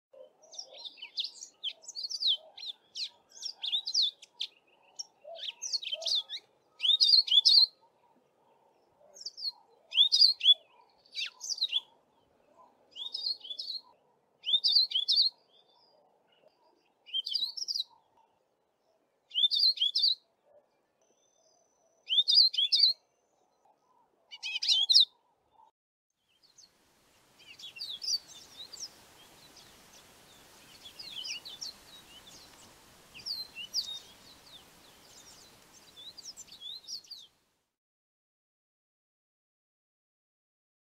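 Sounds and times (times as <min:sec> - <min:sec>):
canary singing: 0:27.4 - 0:37.3.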